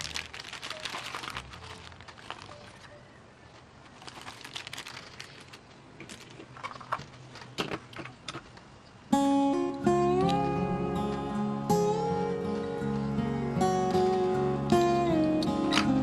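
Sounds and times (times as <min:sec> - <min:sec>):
plastic bag crinkling: 0:00.0 - 0:03.0, 0:03.8 - 0:07.5
guitar music: 0:09.1 - 0:16.0.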